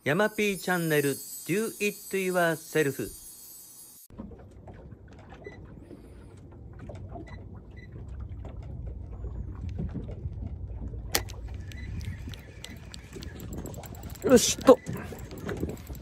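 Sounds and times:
boat low rumble: 4.1s - 16.0s.

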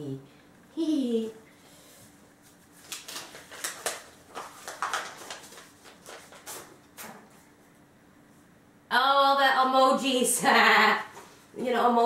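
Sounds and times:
paper rustling and crackling: 2.4s - 7.5s.

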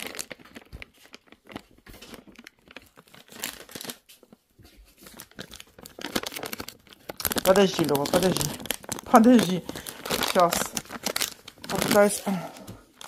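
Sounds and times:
plastic packet crinkling: 0.0s - 4.4s, 5.0s - 13.0s.

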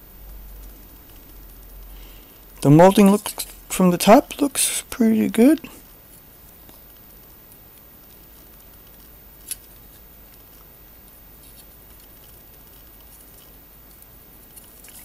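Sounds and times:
faint hiss: 0.0s - 11.9s.

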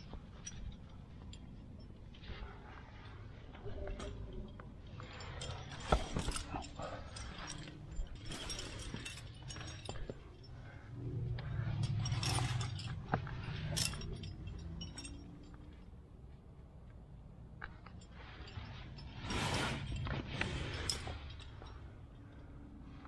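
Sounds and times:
climbing hardware clinking: 0.0s - 23.0s
low rush: 0.4s - 15.8s.

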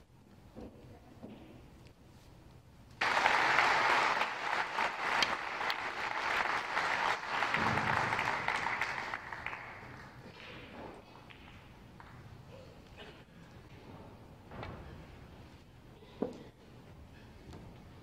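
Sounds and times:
audience applauding: 3.0s - 10.4s.

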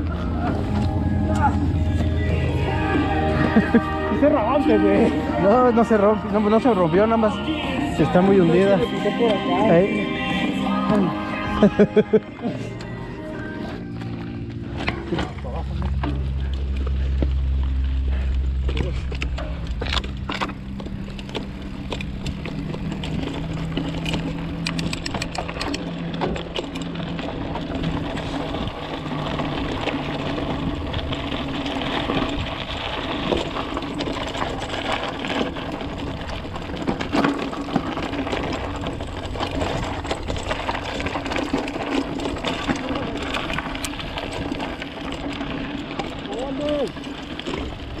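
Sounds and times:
bike tyres rolling on dirt: 0.0s - 48.0s
low steady hum: 0.0s - 48.0s
bike clicks and rattles: 13.6s - 48.0s.

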